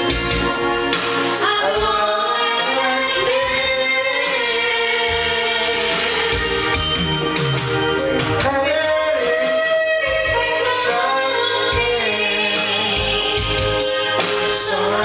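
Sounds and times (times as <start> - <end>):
karaoke backing track: 0.0 - 15.0
people singing into a microphone: 1.4 - 7.4, 8.4 - 15.0.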